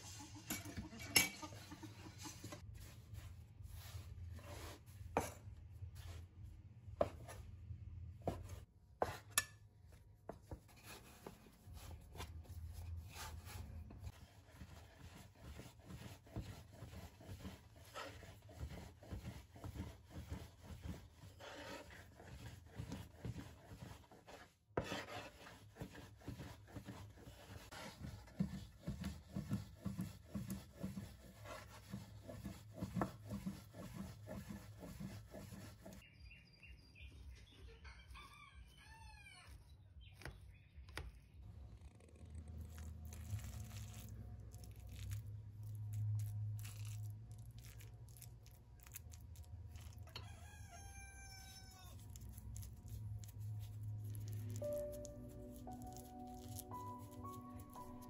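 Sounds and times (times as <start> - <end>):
rooster crowing: 37.9 - 39.6, 50.1 - 52.0.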